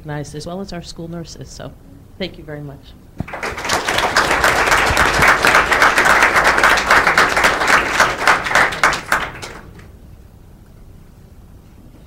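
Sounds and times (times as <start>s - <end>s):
audience applauding: 3.2s - 9.9s.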